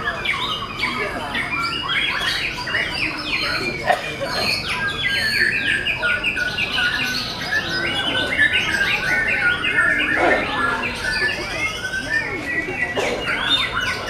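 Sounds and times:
birds singing whistled trills: 0.0s - 14.0s.

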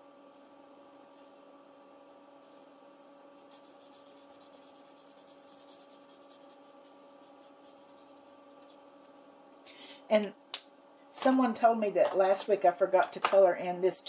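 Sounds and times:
faint steady hum: 0.0s - 14.0s
marker pen scratching on paper: 3.4s - 8.8s.

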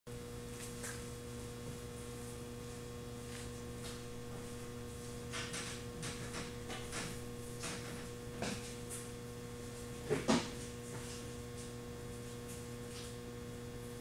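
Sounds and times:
electrical mains hum: 0.1s - 14.0s.

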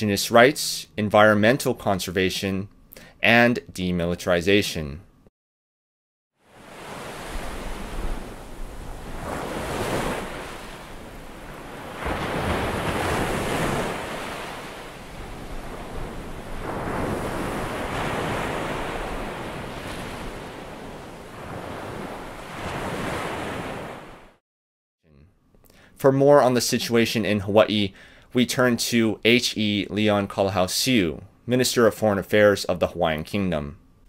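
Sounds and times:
surf breaking on beach: 6.5s - 24.4s.

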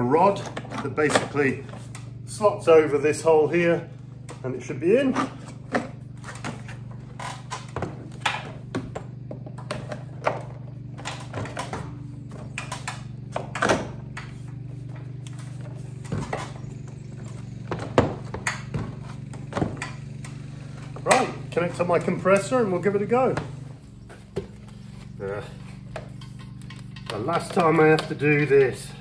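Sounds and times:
lawn mower droning: 0.0s - 29.0s
hose reel knocking: 25.6s - 28.8s.

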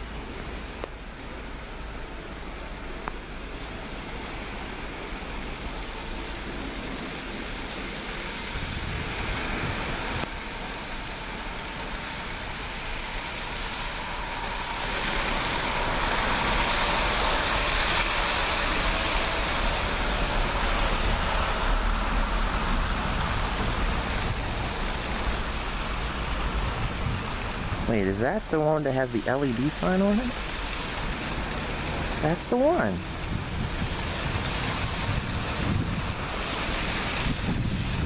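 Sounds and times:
electric railcar running noise: 0.0s - 38.0s
faint whine: 0.0s - 38.0s.

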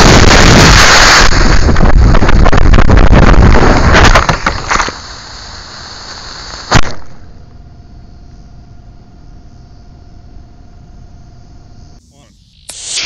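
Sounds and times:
steady low hiss: 0.0s - 13.0s
loud sharp pop: 3.9s - 5.0s, 6.7s - 7.2s
faint thin steady tone: 7.6s - 13.0s.

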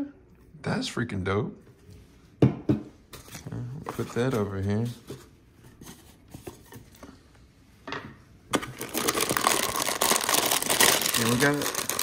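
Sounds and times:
plastic bag crinkling: 8.6s - 12.0s.

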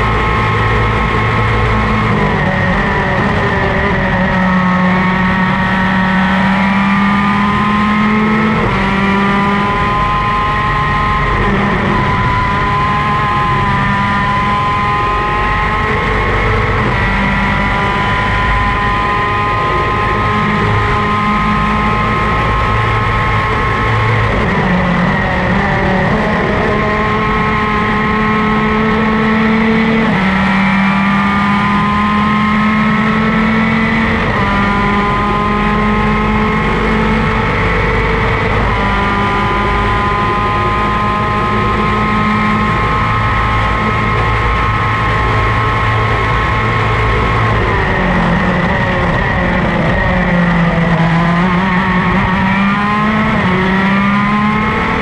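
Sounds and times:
two-stroke racing engine: 0.0s - 55.0s.

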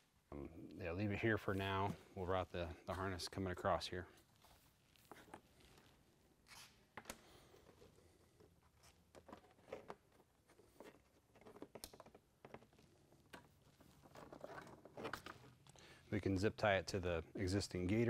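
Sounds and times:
wiring harness clicks and rustles: 8.5s - 15.8s.

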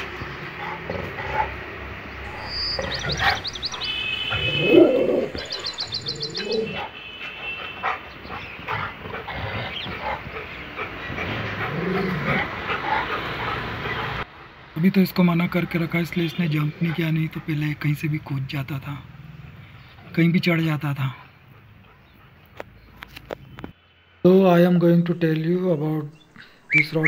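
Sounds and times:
small birds chirping: 0.0s - 14.2s, 16.0s - 27.0s
dog barking deeply: 0.5s - 1.6s, 2.3s - 14.2s.

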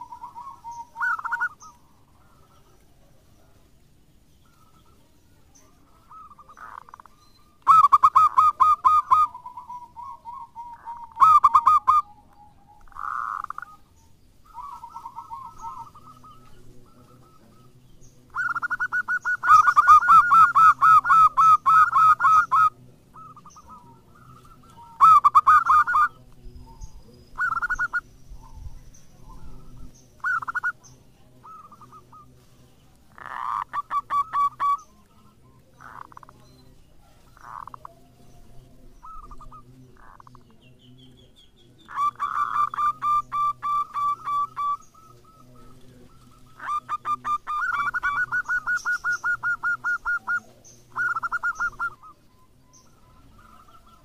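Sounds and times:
dove cooing: 0.0s - 3.8s, 4.4s - 54.0s.

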